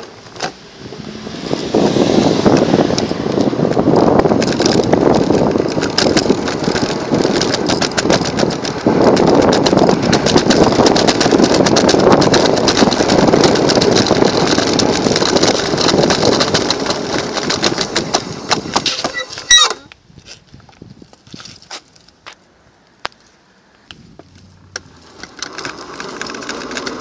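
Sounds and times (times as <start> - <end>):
road and wind noise: 0.0 - 27.0
scooter frame rattling clicks: 2.5 - 20.0, 23.8 - 27.0.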